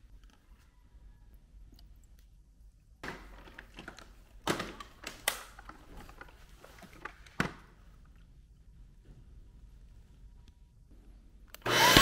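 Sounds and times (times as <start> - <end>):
hard plastic rattling: 3.0 - 7.7.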